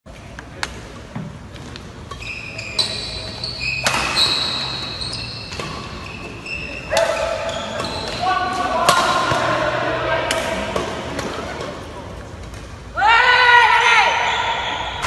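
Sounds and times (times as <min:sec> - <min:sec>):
sneakers squeaking on court floor: 0:01.5 - 0:09.4.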